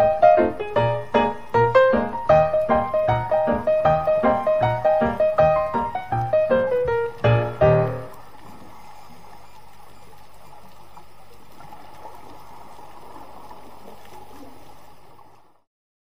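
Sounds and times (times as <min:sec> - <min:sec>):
piano chord: 0:00.0 - 0:08.2
faint water gurgles: 0:00.0 - 0:15.7.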